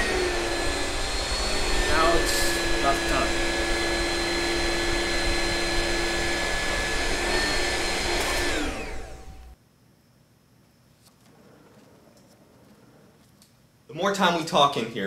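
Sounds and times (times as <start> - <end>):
vacuum cleaner motor whining: 0.0 - 9.6.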